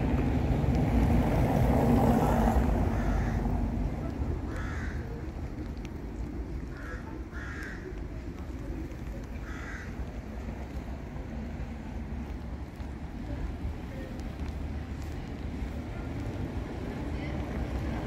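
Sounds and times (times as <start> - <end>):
crow cawing: 2.9 - 3.5, 4.5 - 5.2, 6.7 - 8.0, 9.4 - 10.0.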